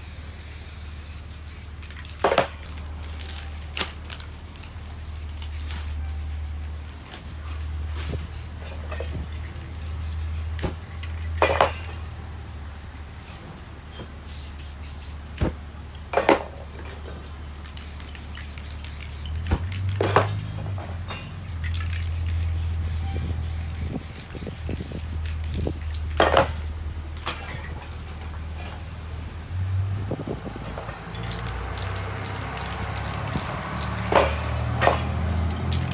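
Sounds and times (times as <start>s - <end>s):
aerosol spray cans hissing: 0.0s - 2.4s, 9.6s - 11.2s, 14.2s - 15.4s, 17.6s - 20.0s, 21.6s - 26.2s, 31.2s - 35.9s.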